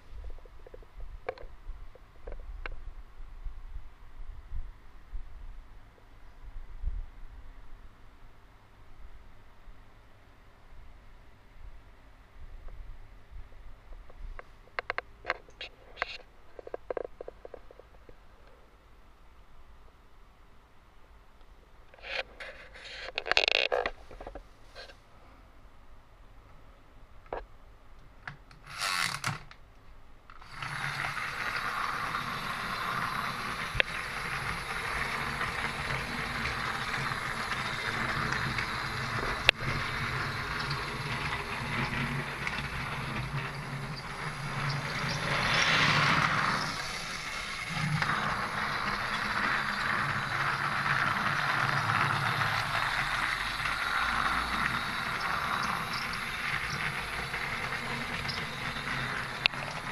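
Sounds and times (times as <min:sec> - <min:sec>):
toy train motor whirring: 0:28.6 - 0:29.5, 0:30.3 - 0:59.9.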